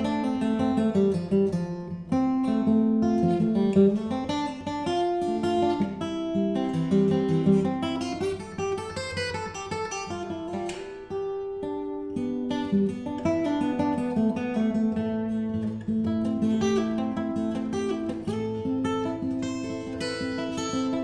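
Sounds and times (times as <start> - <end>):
acoustic guitar playing: 0.0 - 21.0.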